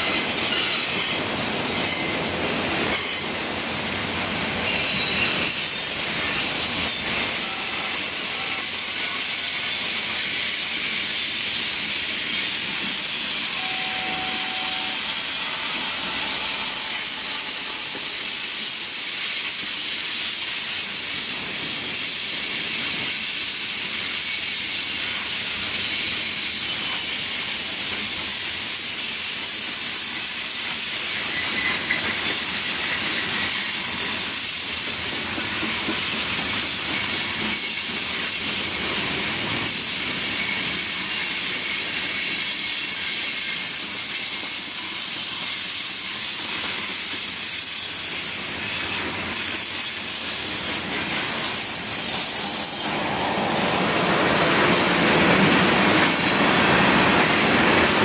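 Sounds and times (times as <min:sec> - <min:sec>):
high wheel squeal: 0:00.0 - 0:58.0
train wheels rushing on rail: 0:00.0 - 0:58.0.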